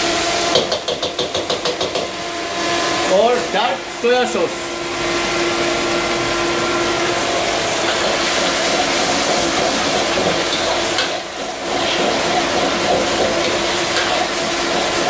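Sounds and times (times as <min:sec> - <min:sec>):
gas burner roaring: 0:00.0 - 0:15.0
sauce sizzling and bubbling: 0:05.0 - 0:15.0.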